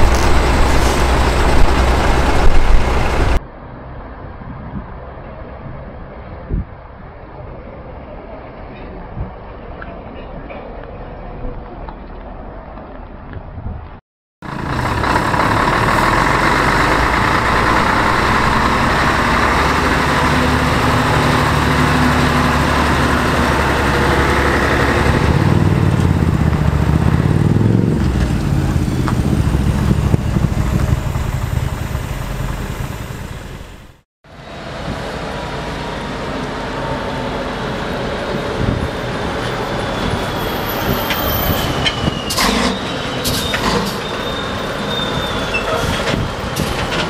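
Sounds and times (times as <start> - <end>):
truck driving past: 0.0 - 3.4, 14.4 - 41.8.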